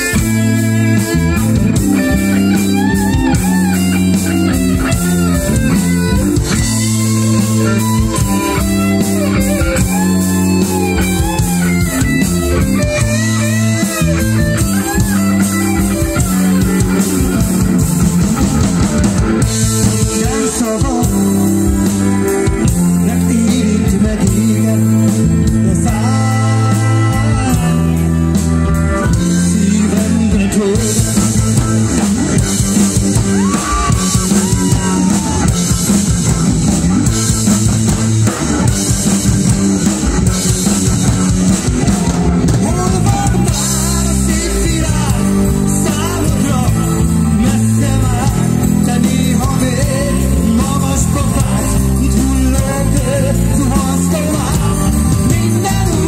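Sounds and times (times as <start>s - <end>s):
drum kit: 0.0s - 56.0s
electric guitar: 0.0s - 56.0s
keyboards: 0.0s - 56.0s
man singing: 19.4s - 35.7s, 41.8s - 56.0s.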